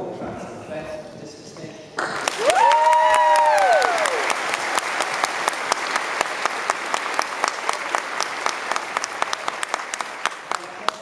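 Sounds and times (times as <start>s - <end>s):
audience applauding: 2.0s - 11.0s
long whoops: 2.4s - 4.3s.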